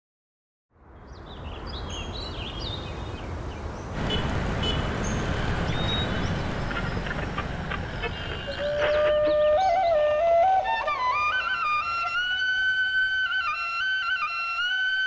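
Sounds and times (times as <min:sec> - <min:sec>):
city traffic rumbling: 0:00.8 - 0:10.6
birds chirping: 0:01.0 - 0:12.0.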